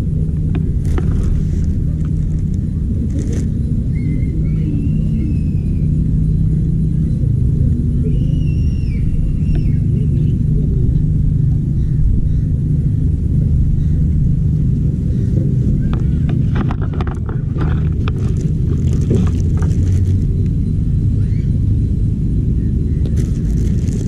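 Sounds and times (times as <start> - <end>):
low rumble: 0.0 - 24.0
clicks and rattles: 15.9 - 20.5.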